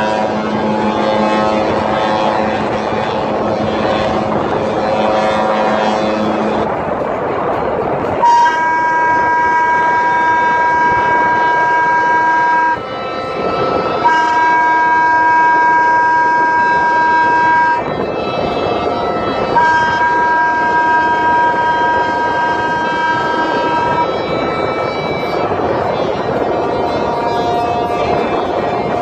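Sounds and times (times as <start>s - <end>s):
rushing water: 0.0s - 29.0s
ship's horn blasts: 0.0s - 29.0s
wind: 0.0s - 29.0s.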